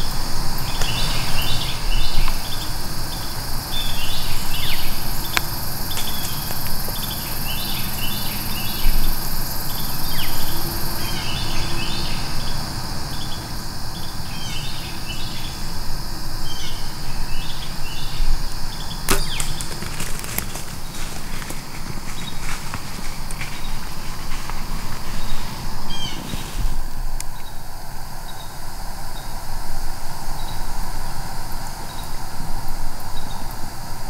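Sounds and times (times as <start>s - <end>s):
faint crackles: 0.0s - 7.8s, 19.1s - 27.6s
birds chirping: 0.0s - 29.4s
insects buzzing: 0.0s - 34.0s
bow string snap: 19.1s - 19.8s.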